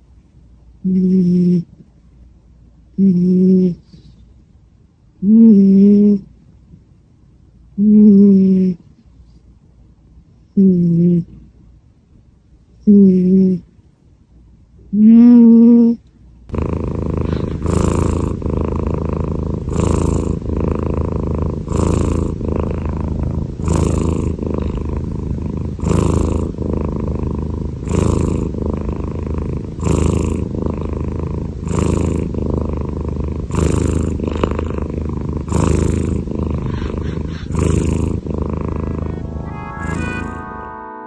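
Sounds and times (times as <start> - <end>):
cat snoring loudly: 0.9 - 1.7, 3.0 - 3.9, 5.2 - 6.3, 10.6 - 11.3, 12.9 - 13.6, 15.0 - 40.4.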